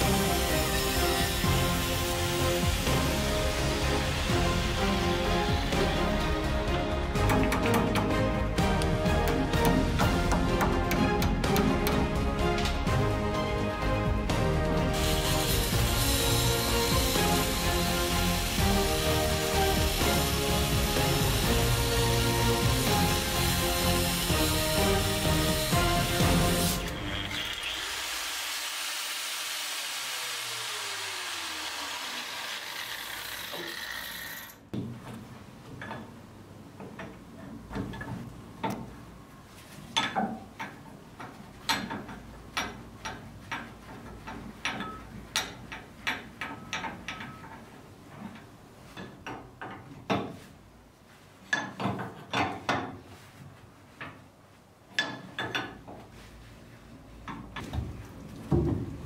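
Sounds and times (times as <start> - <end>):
angle grinder winding down: 0.0 - 6.4, 14.9 - 34.6
hand tools clicking on metal: 7.2 - 8.2.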